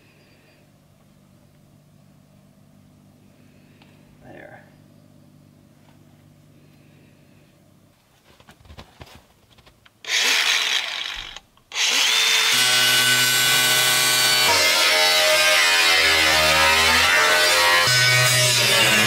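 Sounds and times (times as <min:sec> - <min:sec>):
grinder cutting steel: 0:10.1 - 0:19.0.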